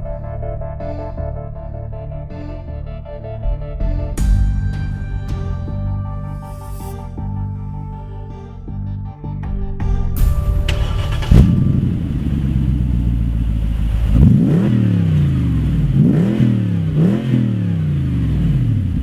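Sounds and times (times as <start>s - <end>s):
car engine starting and revving: 10.2s - 19.0s.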